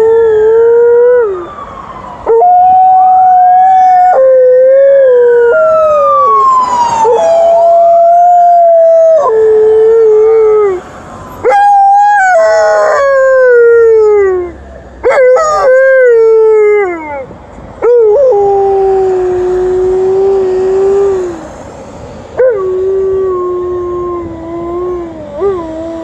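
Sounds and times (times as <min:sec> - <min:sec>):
two-tone ambulance siren: 0:00.0 - 0:21.8, 0:22.4 - 0:26.0
dog howling: 0:11.4 - 0:17.2, 0:22.4 - 0:26.0.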